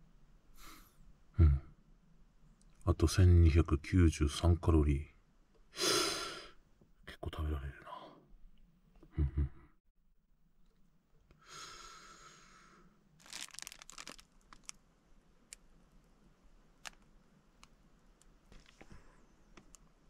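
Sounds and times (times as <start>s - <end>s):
packaging crinkling: 13.2s - 14.8s, 16.8s - 17.7s
packaging tearing: 13.2s - 14.8s.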